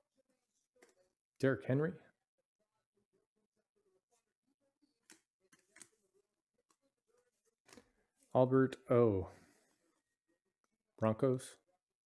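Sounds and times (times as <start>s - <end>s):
cards being shuffled: 5.1s - 6.0s.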